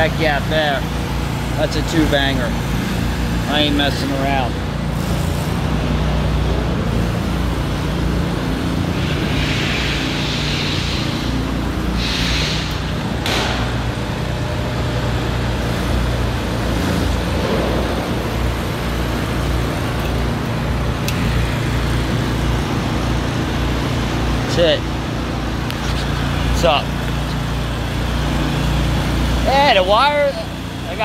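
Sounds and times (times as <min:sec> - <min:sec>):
highway traffic din: 0:00.0 - 0:31.0
low engine drone: 0:00.0 - 0:31.0
brief hissing: 0:11.9 - 0:13.0.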